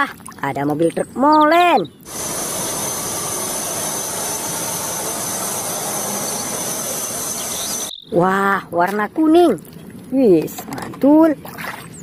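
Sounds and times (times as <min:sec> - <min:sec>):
truck diesel engine driving by: 0:02.1 - 0:07.9
thin high whine: 0:02.1 - 0:08.0.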